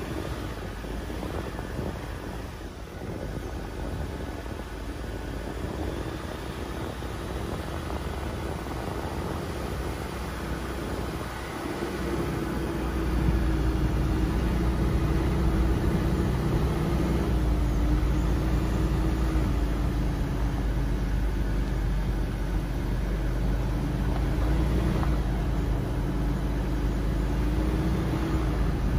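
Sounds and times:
car engine hum: 0:00.0 - 0:28.9
tyre and road rumble: 0:00.0 - 0:28.9.

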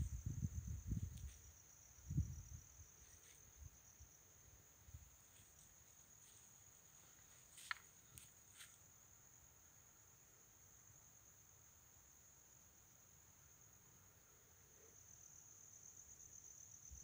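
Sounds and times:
insect trill: 0:00.0 - 0:17.0.

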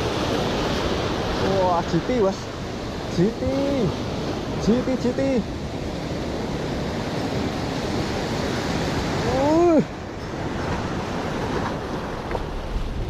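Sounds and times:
surf breaking over rocks: 0:00.0 - 0:13.0
person exclaiming: 0:09.2 - 0:10.0.

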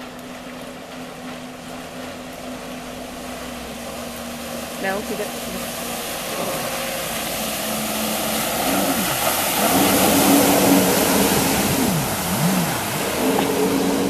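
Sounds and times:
jet ski engine running hard: 0:00.0 - 0:14.0
hiss of water spray: 0:05.4 - 0:14.0.

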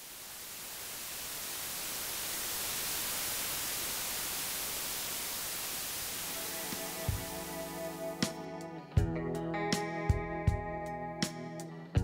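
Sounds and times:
static hiss: 0:00.0 - 0:08.9
music: 0:06.4 - 0:12.0.

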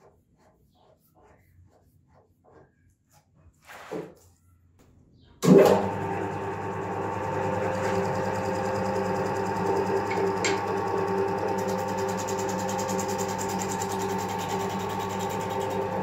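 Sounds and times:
wood lathe motor humming: 0:05.5 - 0:16.0.

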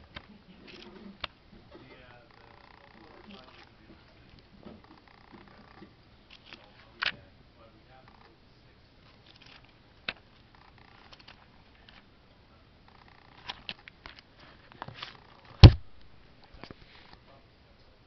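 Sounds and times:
book shutting thump: 0:15.6 - 0:15.8.

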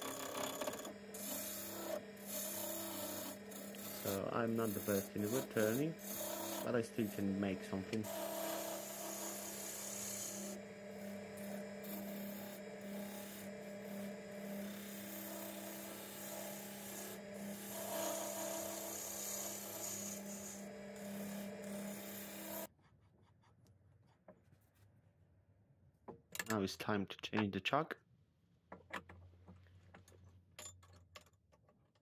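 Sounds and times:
chisel scraping spinning wood: 0:00.0 - 0:22.7
wood lathe humming: 0:00.0 - 0:22.7.

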